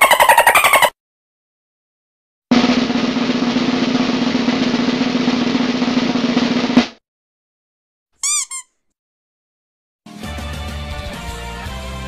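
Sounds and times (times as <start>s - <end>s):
rubber duck squeaking: 0.0s - 1.0s, 8.2s - 8.8s
snare drum roll: 2.5s - 7.0s.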